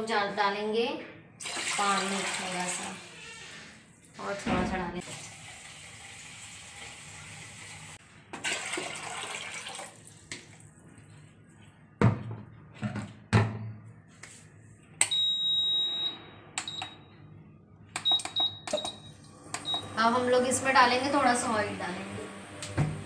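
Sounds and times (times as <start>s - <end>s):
water pouring into a pot: 5.0s - 10.7s
cooktop long beep: 15.0s - 17.1s, 18.0s - 20.4s.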